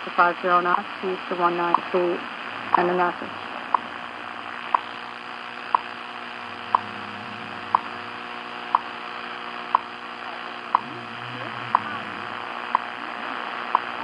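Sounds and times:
radio static hiss: 0.0s - 14.0s
radio time signal ticks: 0.5s - 2.0s, 2.7s - 3.9s, 4.7s - 5.0s, 5.6s - 6.0s, 6.7s - 6.9s, 7.7s - 9.0s, 9.7s - 9.9s, 10.7s - 10.9s, 11.7s - 11.9s, 12.7s - 12.9s, 13.7s - 14.0s.

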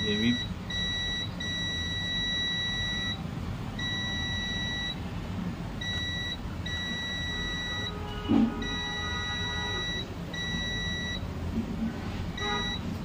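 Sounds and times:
multimeter high beep: 0.0s - 3.2s, 3.8s - 5.0s, 5.8s - 8.0s, 8.6s - 11.2s, 12.4s - 12.9s.

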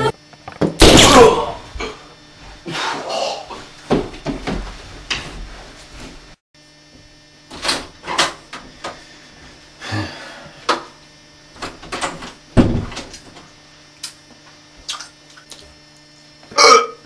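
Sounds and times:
heavy door thump: 12.6s - 13.1s.

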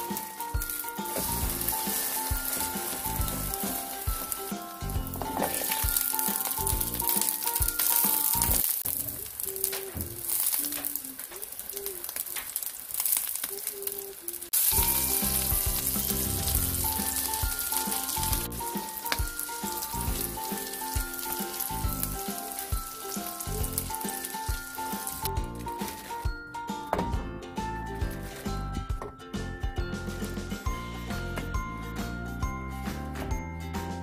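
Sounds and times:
spatula turning food: 0.0s - 26.2s
patties sizzling in oil: 0.0s - 26.4s.

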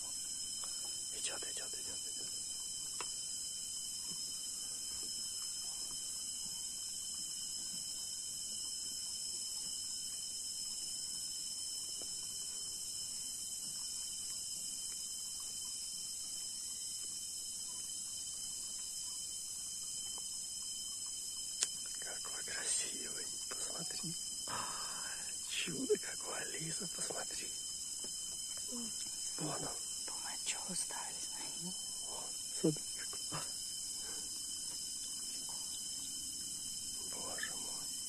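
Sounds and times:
insect chorus drone: 0.0s - 38.0s.

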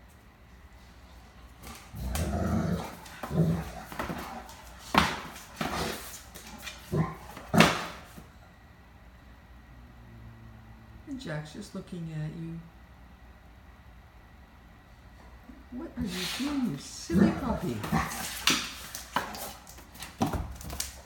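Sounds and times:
dog growling: 1.6s - 8.0s, 16.4s - 19.4s.

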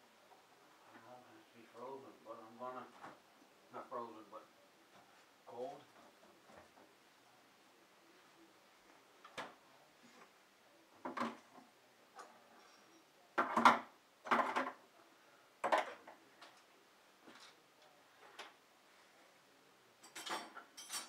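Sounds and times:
dishes knocking and clattering: 11.0s - 11.6s, 13.4s - 14.8s, 15.6s - 16.2s, 20.0s - 21.0s.

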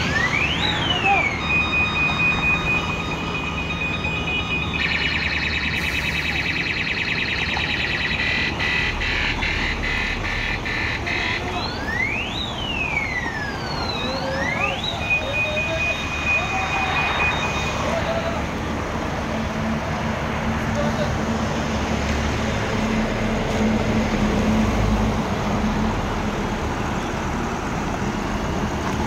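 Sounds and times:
siren whoops: 0.0s - 18.6s
truck engine rumbling: 0.0s - 29.0s
electronic truck horn beeping: 7.8s - 11.7s.

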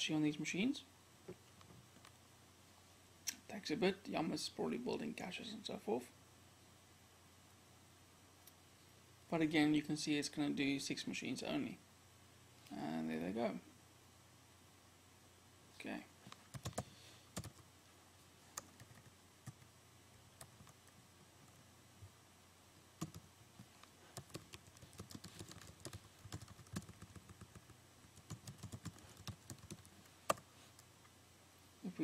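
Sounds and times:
typing on computer keyboard: 16.5s - 16.8s, 17.4s - 17.6s, 18.6s - 19.7s, 23.0s - 23.2s, 24.2s - 30.4s.

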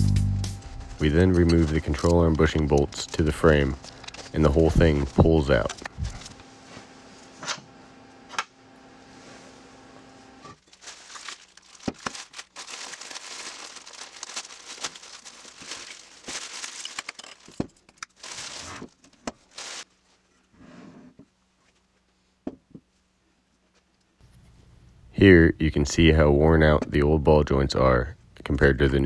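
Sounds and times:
faint steady hum: 0.0s - 29.0s
plastic packaging crinkling: 0.6s - 6.4s, 10.6s - 20.1s.

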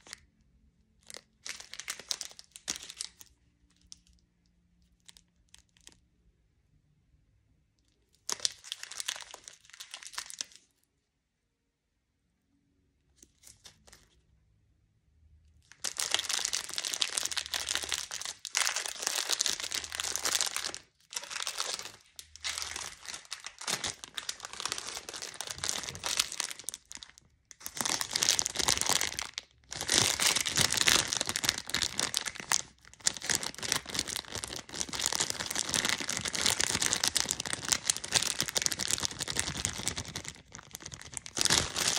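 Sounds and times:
cellophane wrappers crinkling: 0.0s - 0.2s, 1.0s - 4.2s, 8.1s - 10.8s, 15.7s - 41.9s.

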